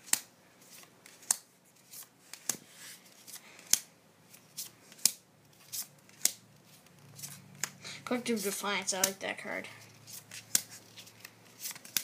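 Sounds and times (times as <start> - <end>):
playing cards snapping: 4.6 - 6.4, 10.3 - 12.0.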